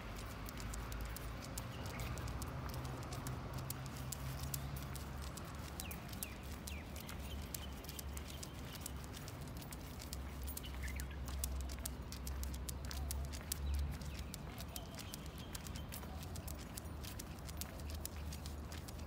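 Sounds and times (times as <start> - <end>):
dog claws clicking on paving: 0.0 - 19.0.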